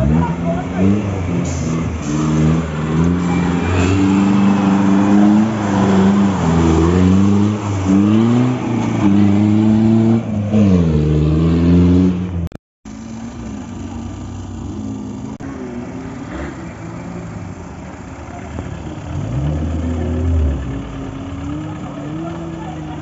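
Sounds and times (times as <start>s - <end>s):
jeep engine revving hard: 0.0s - 12.3s.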